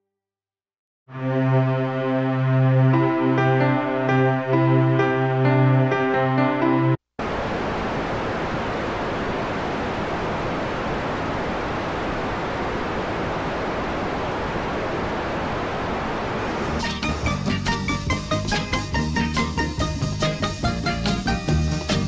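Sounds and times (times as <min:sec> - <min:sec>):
steady static hiss: 0:07.2 - 0:22.0.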